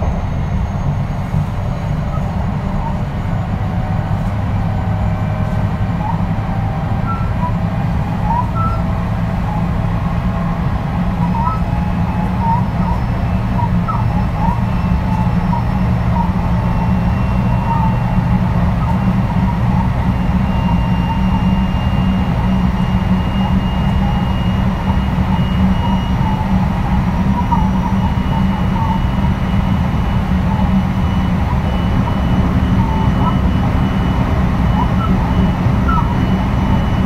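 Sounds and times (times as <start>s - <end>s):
high whine: 0.0s - 37.0s
train wheels rumbling on rails: 0.0s - 37.0s.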